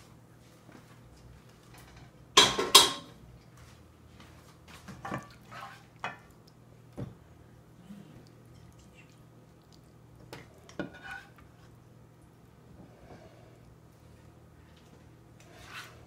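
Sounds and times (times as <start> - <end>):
dishes and cutlery clattering: 1.8 - 3.2.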